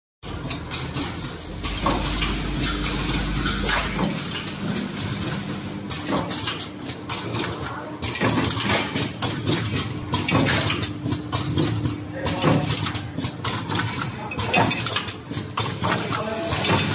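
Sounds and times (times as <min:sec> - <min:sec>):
machine hum: 0:00.2 - 0:14.3
metallic clicking and clatter: 0:00.3 - 0:16.9
low rumble: 0:01.3 - 0:06.1.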